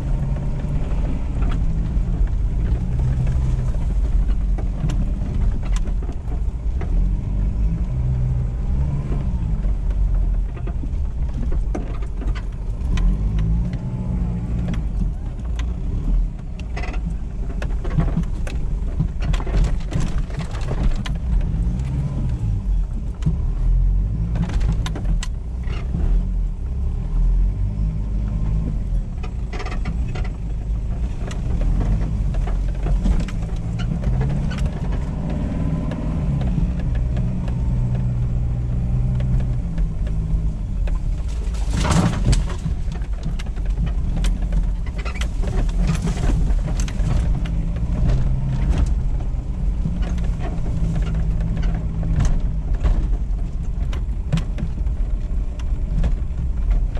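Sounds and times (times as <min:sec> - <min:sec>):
diesel engine running: 0:00.0 - 0:25.7, 0:26.3 - 0:56.9
vehicle jolt: 0:00.0 - 0:56.9
vehicle body knocks and rattles: 0:08.8 - 0:13.6, 0:14.5 - 0:26.1, 0:28.4 - 0:56.9.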